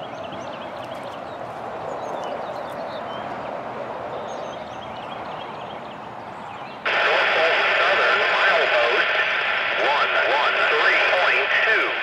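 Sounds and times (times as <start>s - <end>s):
small birds chirping: 0.0s - 6.8s
steady rushing noise: 6.8s - 12.0s.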